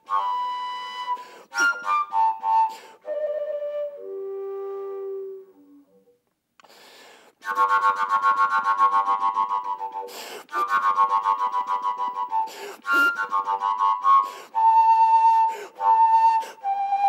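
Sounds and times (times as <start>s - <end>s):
overtone flute pulsing: 0.0s - 6.2s, 7.4s - 17.0s
rush of breath: 1.2s - 1.8s, 2.7s - 3.0s, 6.6s - 7.4s, 10.0s - 10.7s, 12.4s - 13.2s, 14.2s - 14.6s, 15.4s - 15.8s.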